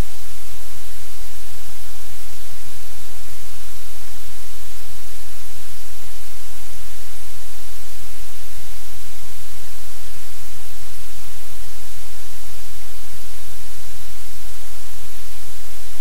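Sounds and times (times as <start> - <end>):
static hiss: 0.0 - 16.0.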